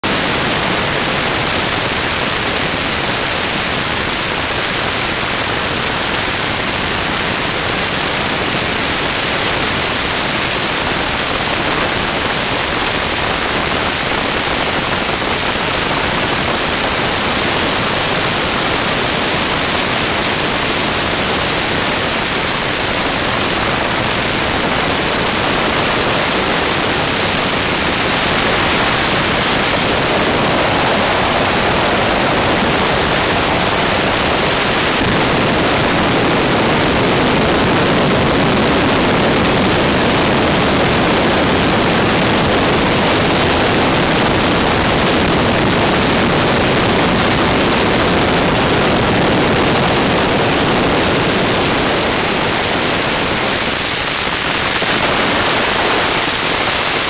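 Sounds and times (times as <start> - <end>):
wind on microphone: 0.0 - 57.0.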